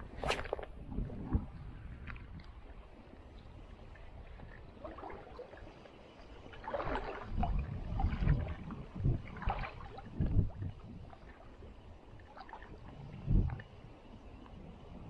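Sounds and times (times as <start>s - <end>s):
splashes and low thumps: 0.0s - 2.7s, 6.5s - 11.5s
water sloshing against boat: 0.0s - 13.8s.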